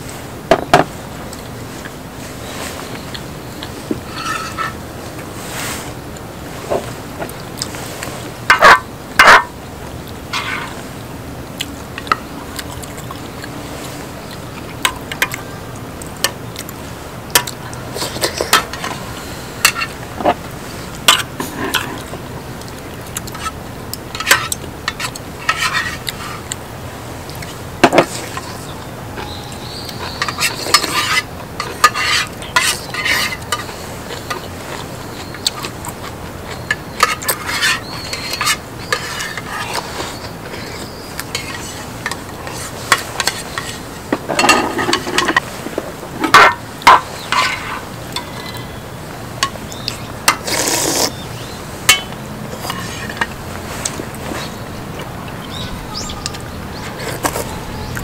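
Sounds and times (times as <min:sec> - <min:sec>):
background hiss: 0:00.0 - 0:58.0
cutlery clinking and scraping: 0:04.0 - 0:04.8, 0:08.5 - 0:09.6, 0:10.3 - 0:10.8, 0:19.6 - 0:20.4, 0:21.0 - 0:22.2, 0:23.3 - 0:26.5, 0:30.0 - 0:45.5, 0:46.2 - 0:48.7, 0:51.9 - 0:54.6.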